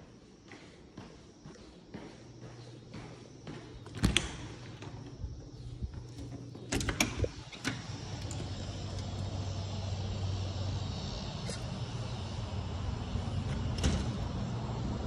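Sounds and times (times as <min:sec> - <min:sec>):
steady low hum: 0:00.0 - 0:15.0
sliding door opening: 0:06.1 - 0:10.3, 0:12.4 - 0:15.0.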